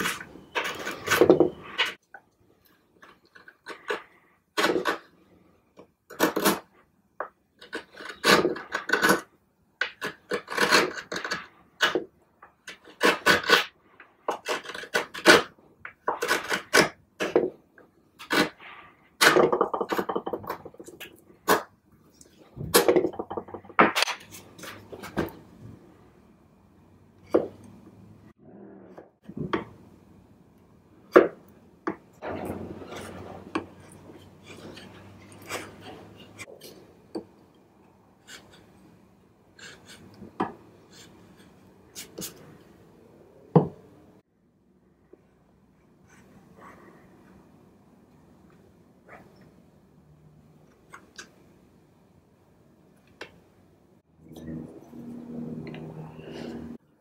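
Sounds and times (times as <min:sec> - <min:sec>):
chisel clicking and scraping: 0:05.8 - 0:12.0, 0:12.6 - 0:17.5, 0:31.9 - 0:37.6, 0:39.6 - 0:42.4.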